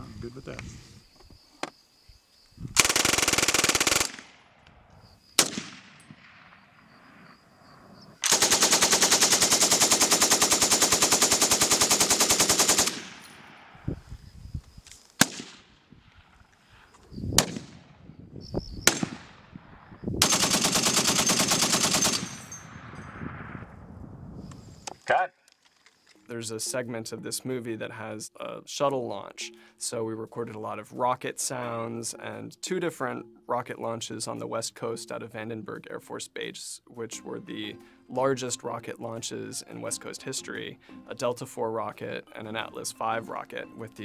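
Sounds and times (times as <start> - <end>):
automatic gunfire bursts: 2.8 - 4.3, 8.2 - 13.2, 20.2 - 22.4
single gunshots: 5.4 - 6.8, 15.2 - 15.8, 17.3 - 18.0, 18.8 - 19.6.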